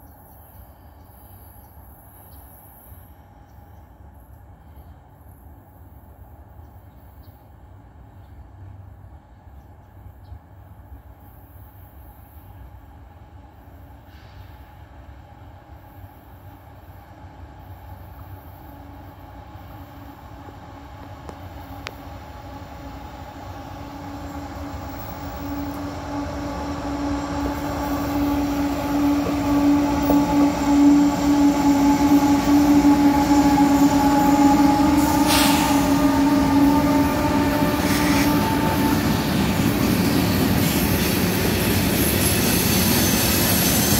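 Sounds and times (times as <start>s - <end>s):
diesel locomotive engine: 0.0s - 43.9s.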